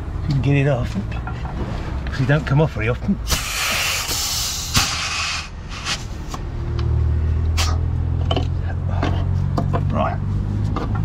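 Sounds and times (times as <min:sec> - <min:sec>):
compressed air hissing: 0:03.2 - 0:06.3.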